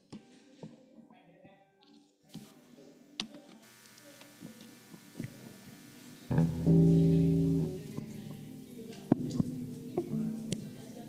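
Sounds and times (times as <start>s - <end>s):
electric guitar low note: 6.3s - 10.8s.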